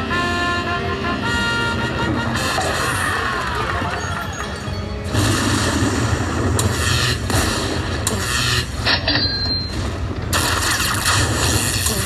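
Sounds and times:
electronic lightning zaps and booms: 0:05.1 - 0:12.0.

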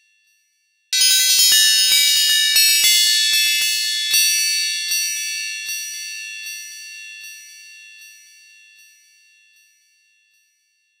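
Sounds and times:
wind chimes ringing: 0:01.0 - 0:07.0.

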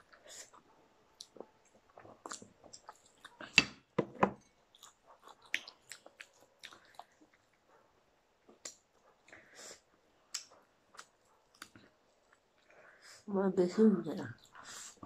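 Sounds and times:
chewing and biting fried chicken: 0:04.7 - 0:07.5.

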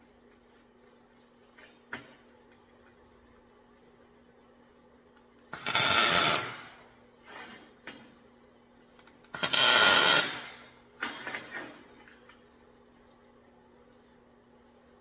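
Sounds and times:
welder crackling sizzle: 0:05.5 - 0:06.7, 0:09.3 - 0:10.5.

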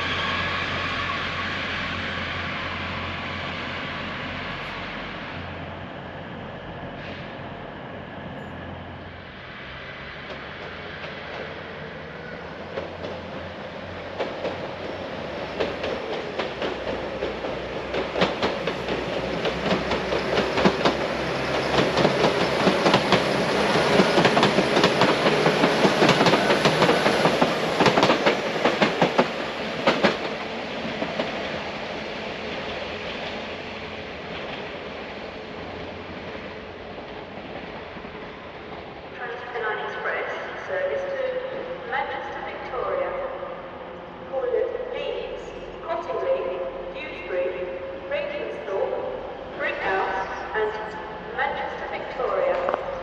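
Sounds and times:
train rumble: 0:00.0 - 0:53.0
train wheels clicking over rail joints: 0:12.6 - 0:31.7.

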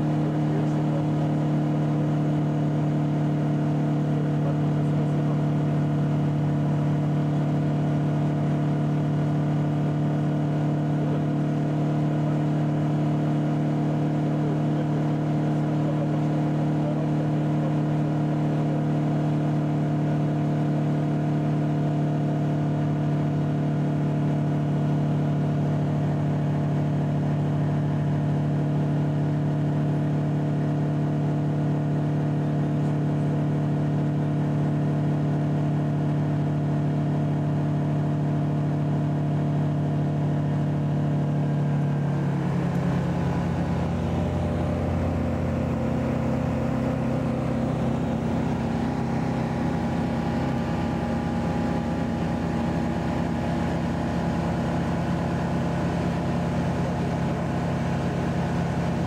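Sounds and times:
aircraft engine and propeller humming: 0:41.4 - 0:59.0.

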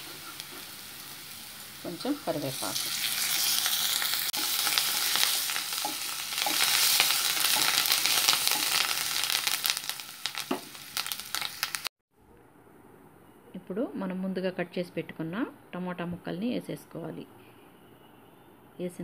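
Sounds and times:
onions sizzling in hot oil: 0:00.0 - 0:11.9.

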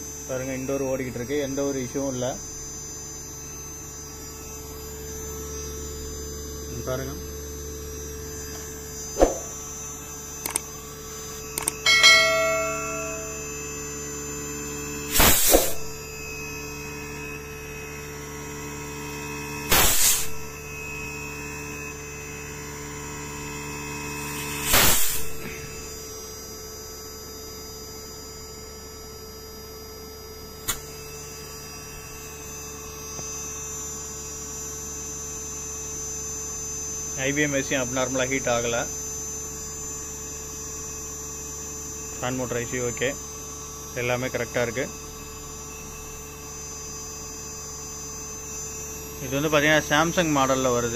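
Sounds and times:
air conditioner compressor humming: 0:00.0 - 0:19.4
sharp click: 0:10.4 - 0:10.7, 0:11.5 - 0:13.3, 0:30.6 - 0:30.9
ringing ding: 0:11.8 - 0:14.2.

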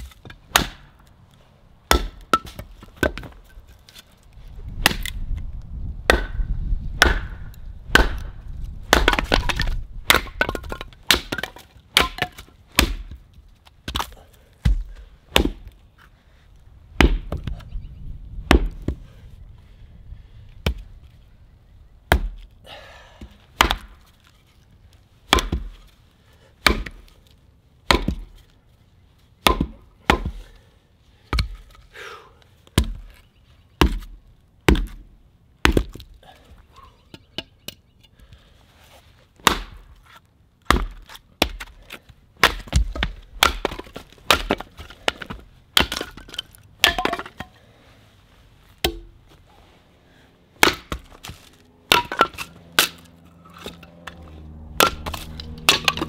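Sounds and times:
sharp wooden knocks: 0:06.0 - 0:08.3, 0:08.9 - 0:13.2, 0:54.8 - 0:56.0.

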